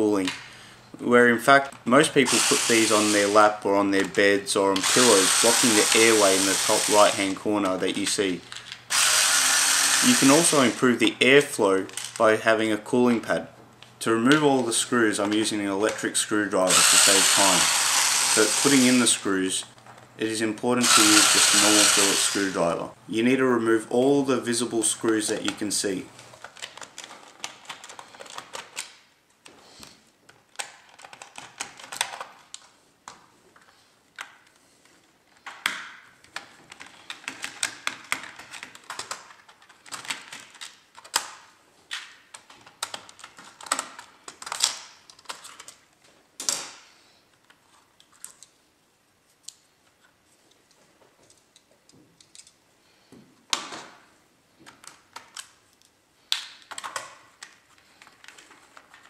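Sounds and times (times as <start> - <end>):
screwdriver and screws rattling: 4.8 - 7.3, 8.9 - 10.8, 16.7 - 19.2, 20.8 - 22.6.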